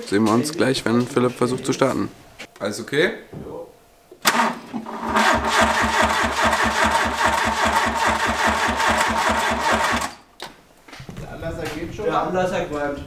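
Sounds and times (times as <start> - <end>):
engine cranking slowly: 4.3 - 10.1.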